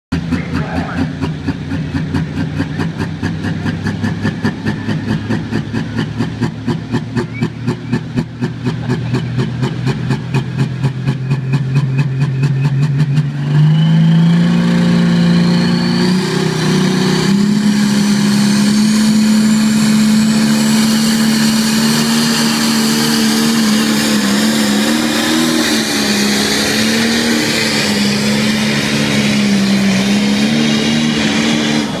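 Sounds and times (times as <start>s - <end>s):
turbo whine: 0.1s - 1.6s
diesel tractor engine revving: 0.1s - 32.0s.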